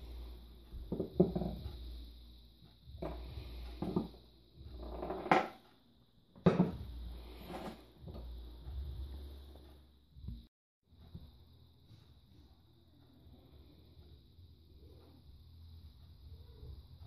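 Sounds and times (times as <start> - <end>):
steady low hum: 0.0 - 17.0
objects knocking on wooden board: 0.9 - 1.6, 3.8 - 4.2, 6.4 - 6.8.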